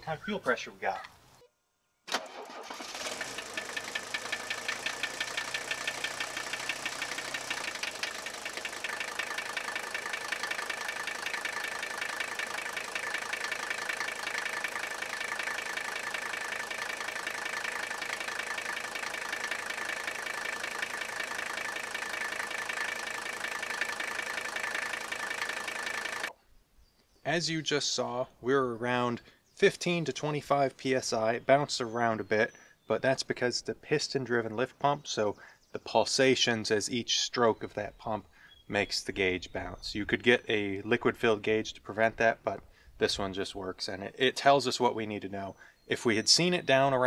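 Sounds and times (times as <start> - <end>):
diesel engine idling: 2.3 - 26.3.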